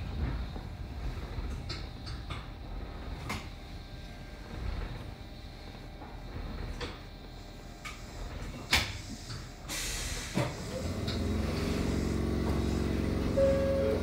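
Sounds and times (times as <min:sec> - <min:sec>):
compressed air hiss: 0:08.8 - 0:10.9
electric train braking: 0:09.7 - 0:14.0
short steady tone: 0:13.3 - 0:14.0.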